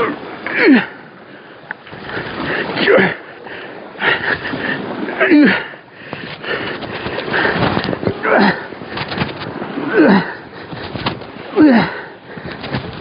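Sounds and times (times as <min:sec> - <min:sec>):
man grunting and groaning: 0:00.0 - 0:01.0, 0:02.8 - 0:03.2, 0:05.2 - 0:05.7, 0:08.2 - 0:08.7, 0:09.8 - 0:10.4, 0:11.5 - 0:12.1.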